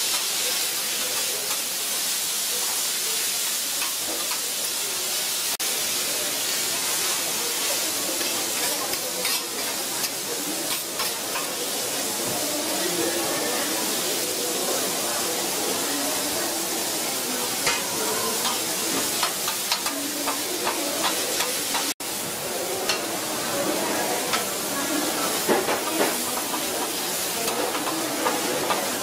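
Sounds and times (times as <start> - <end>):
food sizzling on griddle: 0.0 - 29.0
metal spatulas scraping and clacking: 8.2 - 11.6, 17.6 - 22.0.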